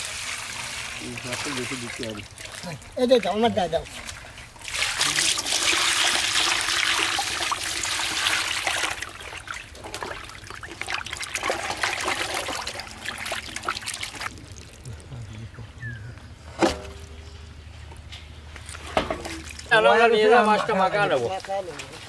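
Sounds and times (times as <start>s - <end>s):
hands rinsing fish splashing: 0.0s - 15.1s
water pouring from a bucket: 0.0s - 15.2s.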